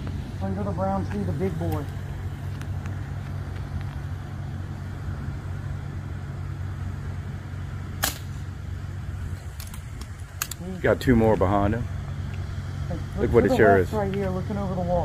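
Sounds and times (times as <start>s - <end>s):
steady low rumble: 0.0s - 15.0s
air rifle firing: 8.0s - 8.5s.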